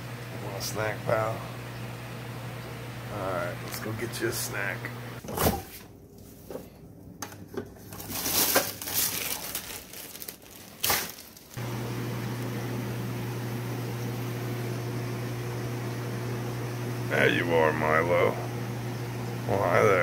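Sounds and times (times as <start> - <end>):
aquarium equipment hum and hiss: 0.0 - 6.5, 11.6 - 20.0.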